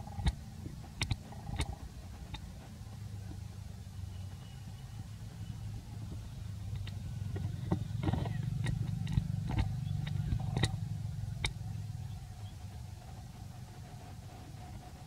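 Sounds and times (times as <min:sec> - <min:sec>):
faint steady hum: 0:00.0 - 0:15.0
low steady rumble: 0:00.0 - 0:15.0
small sharp clicks: 0:00.2 - 0:02.5, 0:06.7 - 0:10.8, 0:11.4 - 0:11.6.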